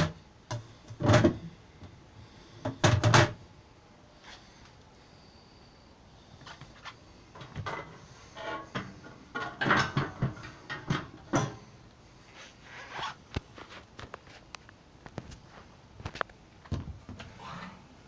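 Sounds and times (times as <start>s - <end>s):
objects knocking and clattering: 0.0s - 1.5s, 2.6s - 3.4s, 7.4s - 11.6s.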